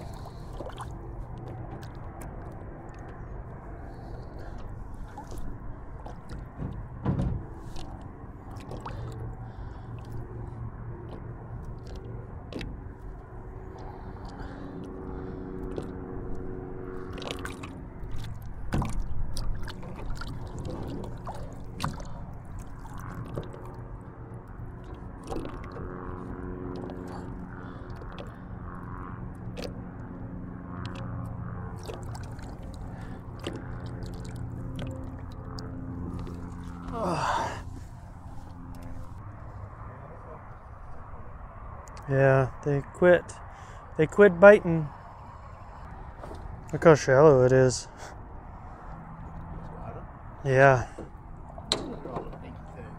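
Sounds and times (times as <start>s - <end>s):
knocks and handling clatter: 5.5s - 8.1s.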